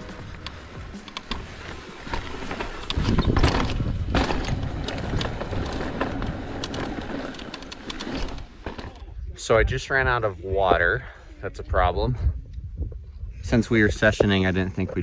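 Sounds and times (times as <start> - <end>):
bike clicks and rattles: 0.0 - 9.2
bike tyre rumble on rock: 0.0 - 11.0
wind buffeting microphone: 0.0 - 15.0.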